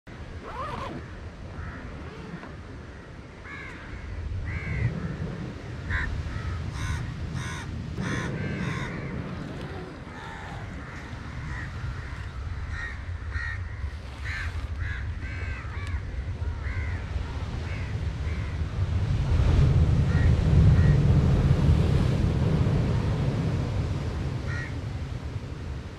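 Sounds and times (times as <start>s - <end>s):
rumble of surf: 0.1s - 25.9s
crows cawing: 2.8s - 4.9s, 5.9s - 17.1s, 24.5s - 24.8s.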